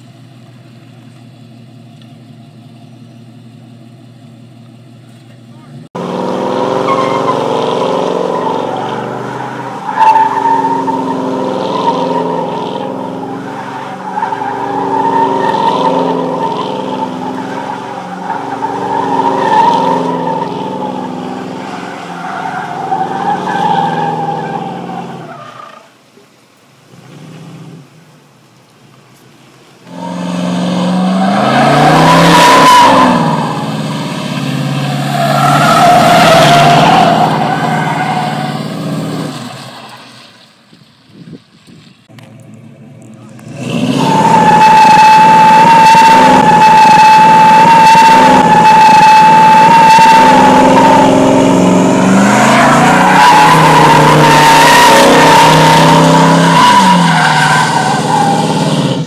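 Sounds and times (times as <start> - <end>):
car engine revving: 5.4 - 25.3, 29.9 - 39.6, 42.1 - 59.0
tyres squealing: 6.5 - 25.8, 29.9 - 39.9, 43.6 - 58.8.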